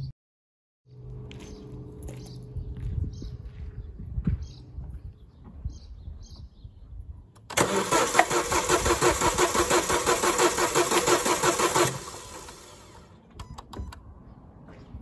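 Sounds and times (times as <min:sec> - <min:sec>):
engine cranking on starter motor: 0:07.4 - 0:13.8.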